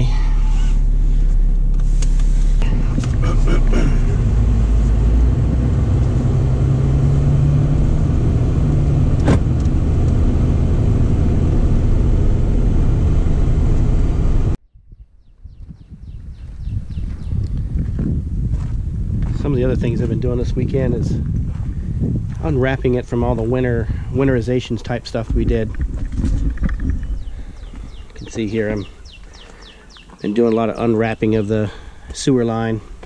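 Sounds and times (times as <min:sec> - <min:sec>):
truck engine and road rumble: 0:00.0 - 0:14.6, 0:15.7 - 0:33.0.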